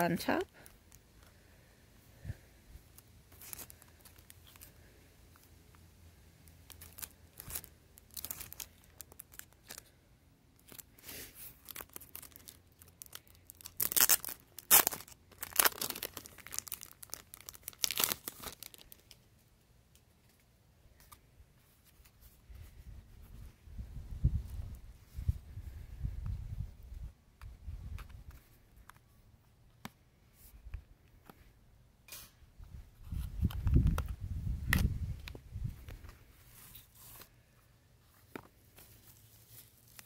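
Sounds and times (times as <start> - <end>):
plastic wrapping crinkling and tearing: 3.3 - 5.5, 6.4 - 10.0, 10.6 - 19.3, 38.8 - 40.0.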